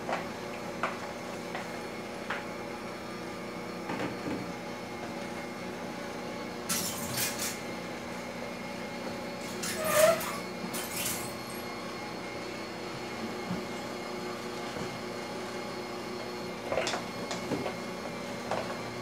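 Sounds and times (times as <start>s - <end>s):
utensil scraping in saucepan: 9.4s - 10.4s.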